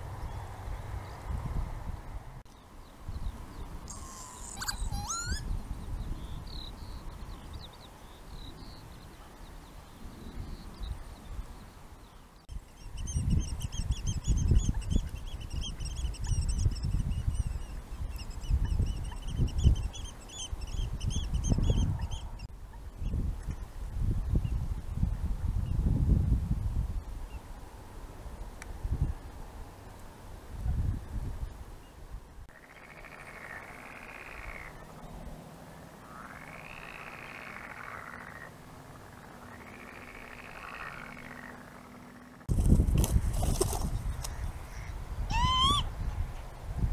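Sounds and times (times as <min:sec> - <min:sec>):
quick high repeated bird notes: 0:03.9 - 0:05.4
bird gliding call: 0:03.9 - 0:05.5, 0:44.2 - 0:46.0.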